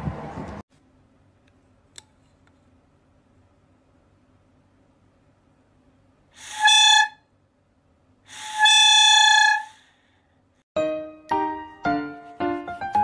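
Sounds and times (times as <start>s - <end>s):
toy trumpet toots: 6.4s - 7.2s, 8.4s - 9.8s.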